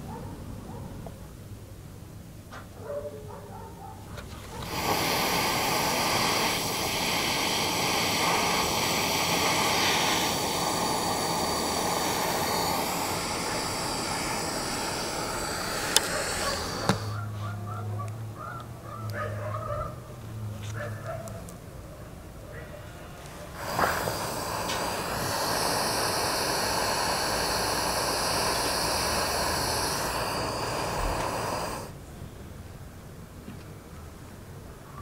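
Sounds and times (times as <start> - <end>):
gas torch flame hissing: 4.2 - 17.3, 23.2 - 32.0
sharp clicks: 14.2 - 17.2.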